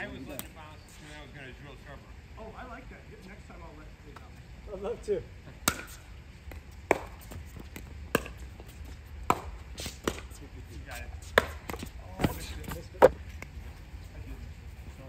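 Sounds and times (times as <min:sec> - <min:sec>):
paddles striking pickleball: 0:05.6 - 0:10.4, 0:11.2 - 0:13.4.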